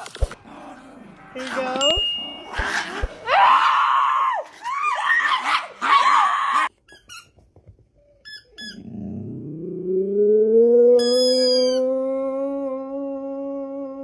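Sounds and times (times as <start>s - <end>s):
squeaky dog toy squeaks: 6.8s - 7.4s, 8.2s - 8.8s, 11.0s - 11.8s.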